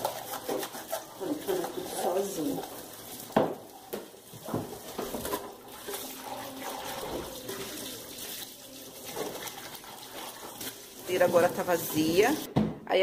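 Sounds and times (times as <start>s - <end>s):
tap running into sink: 3.3s - 5.5s.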